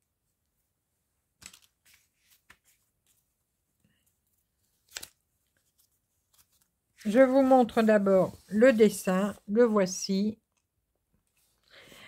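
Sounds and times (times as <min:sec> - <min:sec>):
soft rustles and taps of paper: 0:01.4 - 0:07.1.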